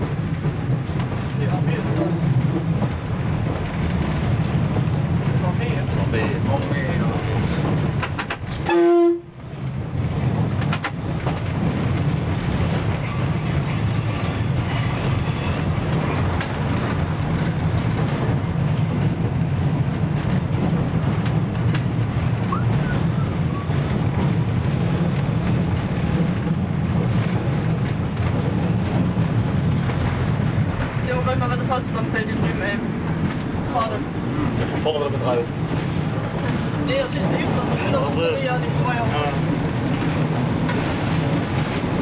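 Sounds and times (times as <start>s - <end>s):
railbus running on track: 0.0s - 42.0s
railbus horn blast: 8.6s - 9.4s.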